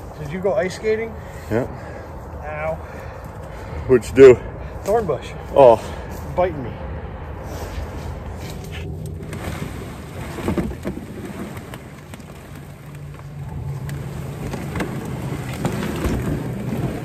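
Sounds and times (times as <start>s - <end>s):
low steady drone: 0.0s - 17.0s
brush and dry leaves rustling: 7.4s - 17.0s
twigs crackling: 7.9s - 17.0s.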